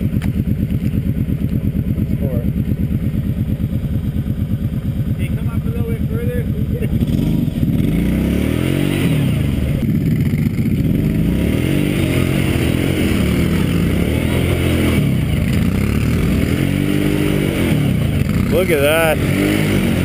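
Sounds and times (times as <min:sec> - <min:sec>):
quad engine revving: 0:05.1 - 0:20.0.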